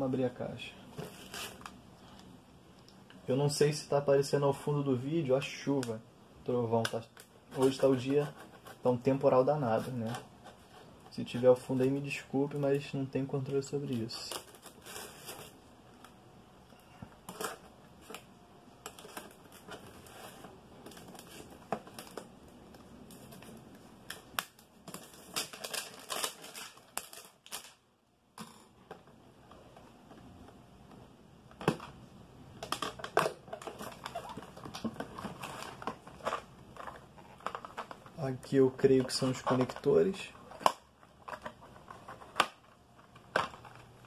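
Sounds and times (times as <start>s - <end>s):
packaging rustling and crinkling: 0.9s - 2.3s, 6.8s - 16.2s, 16.8s - 27.8s, 32.6s - 44.0s.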